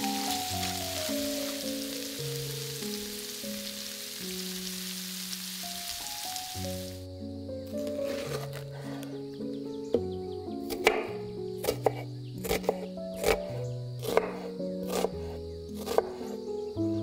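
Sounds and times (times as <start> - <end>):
shrimp sizzling in a pan: 0.0 - 7.0
background music: 0.0 - 17.0.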